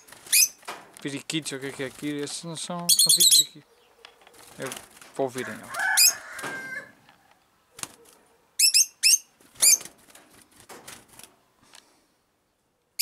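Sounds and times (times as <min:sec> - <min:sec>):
lovebirds shrill squeaky chirps: 0:00.0 - 0:00.6, 0:02.8 - 0:04.4, 0:05.7 - 0:06.9, 0:08.6 - 0:09.9.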